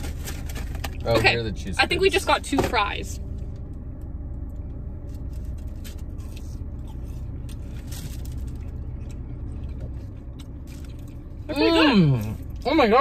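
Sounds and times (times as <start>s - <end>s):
paper bags and containers rustling: 0.0s - 1.4s
car cabin hum: 0.0s - 13.0s.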